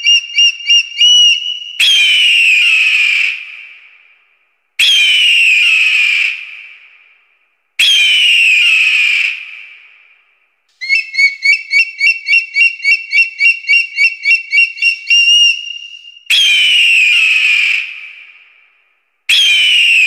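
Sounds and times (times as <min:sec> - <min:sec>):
eagle piping chirps: 0:00.0 - 0:01.9, 0:10.8 - 0:16.2.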